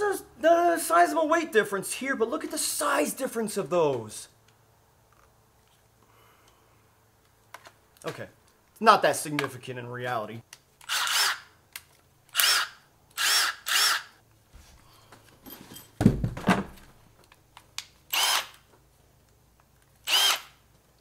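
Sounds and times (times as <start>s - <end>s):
cordless drill motor whirring: 10.9s - 11.5s, 12.3s - 14.1s, 18.1s - 18.6s, 20.0s - 20.6s
heavy knock: 16.0s - 16.8s.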